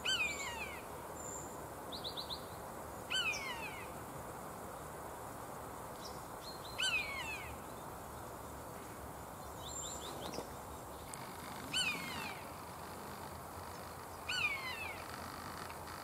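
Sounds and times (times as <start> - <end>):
background hiss: 0.0 - 16.0
buzzard mewing call: 11.1 - 16.0.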